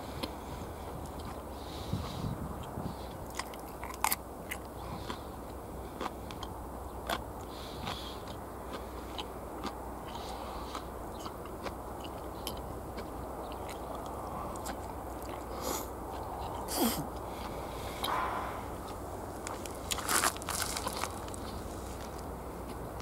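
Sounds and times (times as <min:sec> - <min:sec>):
person chewing food: 0:00.0 - 0:23.0
background hiss: 0:14.0 - 0:22.9.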